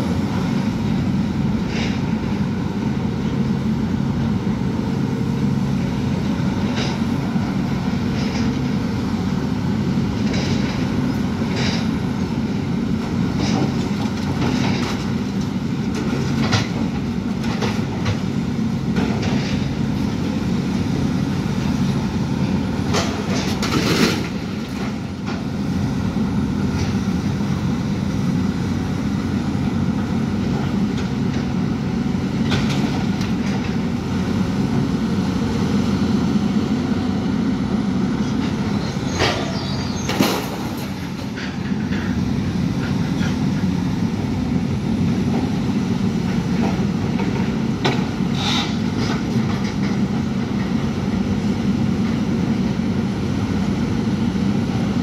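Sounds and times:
excavator diesel engine droning: 0:00.0 - 0:55.0.

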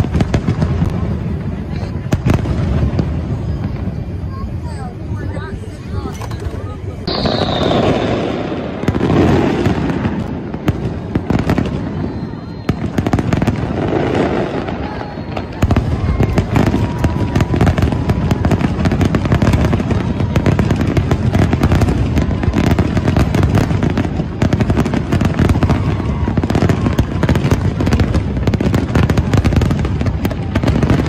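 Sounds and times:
firework shells bursting and crackling: 0:00.0 - 0:31.0.

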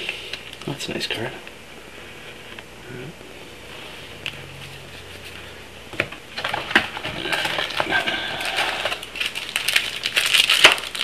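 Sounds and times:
plastic wrappers crinkling: 0:06.3 - 0:11.0.

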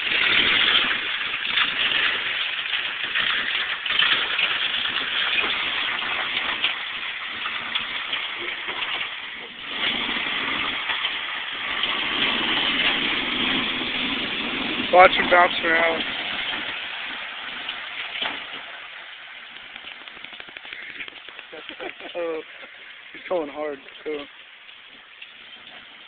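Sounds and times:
recording hiss: 0:00.0 - 0:26.0.

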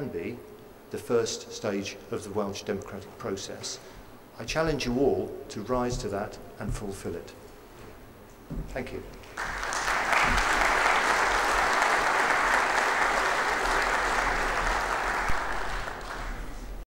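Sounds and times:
audience applauding: 0:09.4 - 0:16.8.

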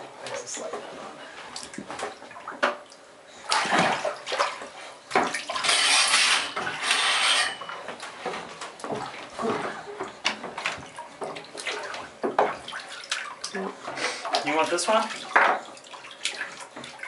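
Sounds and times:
baby splashing in bathwater: 0:03.5 - 0:06.8, 0:10.8 - 0:17.0.

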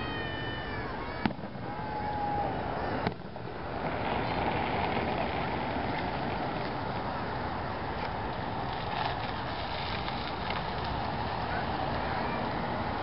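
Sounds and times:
crowd noise: 0:00.0 - 0:13.0
firework whistling: 0:00.0 - 0:13.0
firework shell bang: 0:01.2 - 0:01.6.

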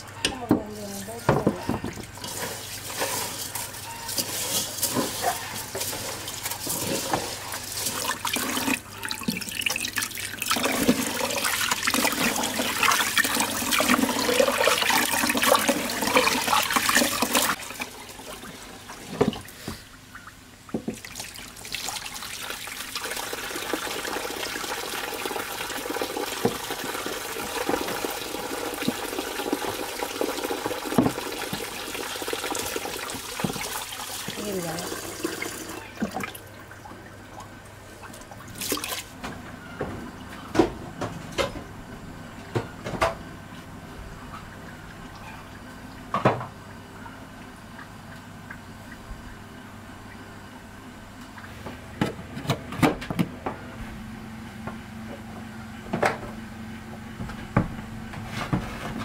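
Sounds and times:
tap water splashing into pot: 0:28.8 - 0:34.4.

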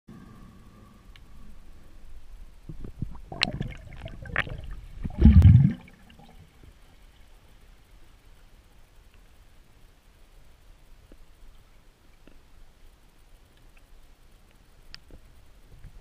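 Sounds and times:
underwater gurgles and bubbling: 0:02.7 - 0:06.8.

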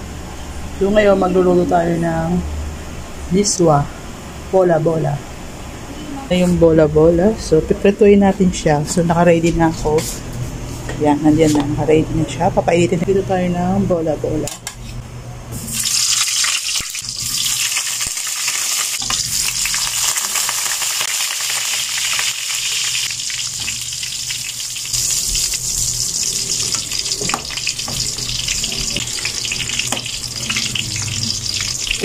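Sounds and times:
meatballs sizzling in hot oil: 0:15.6 - 0:32.0.

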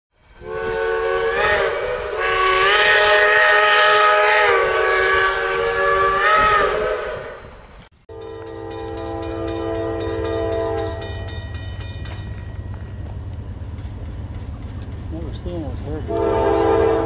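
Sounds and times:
train chime horn blasts: 0:00.4 - 0:07.4, 0:08.1 - 0:12.4, 0:16.1 - 0:17.0.

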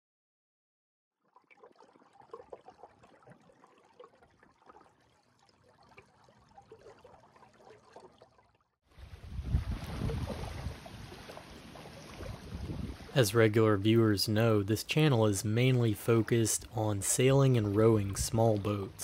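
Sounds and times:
small waves lapping on pebbles: 0:09.0 - 0:13.2.

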